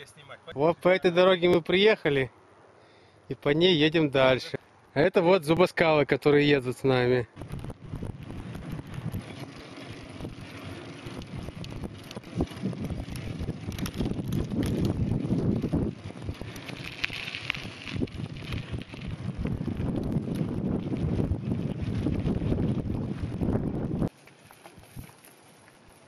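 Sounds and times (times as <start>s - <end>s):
bike tyres on dirt: 6.2s - 26.0s
wind buffeting microphone: 7.3s - 24.1s.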